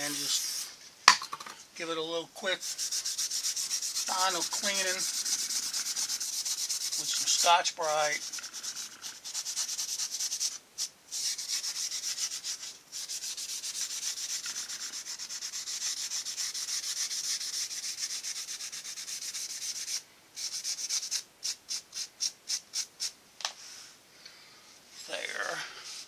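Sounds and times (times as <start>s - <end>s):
abrasive pad scrubbing metal: 2.4s - 10.4s, 11.2s - 19.9s.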